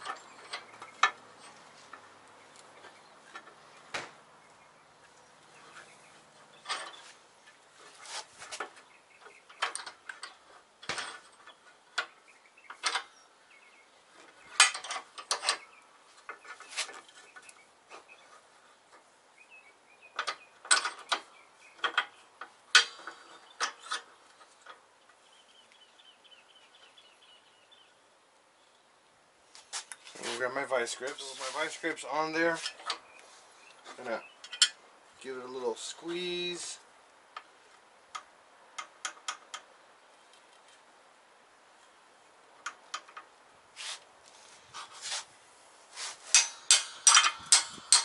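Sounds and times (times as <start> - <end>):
metal clinks and clanks: 46.3 - 48.0.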